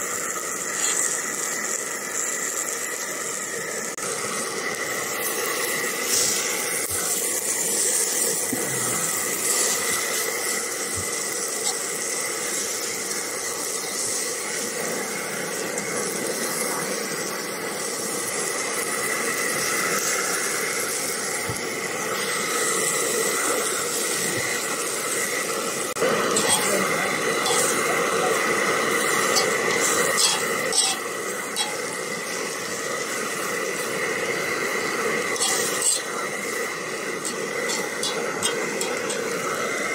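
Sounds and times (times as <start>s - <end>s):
food sizzling in a pan: 0.0s - 39.9s.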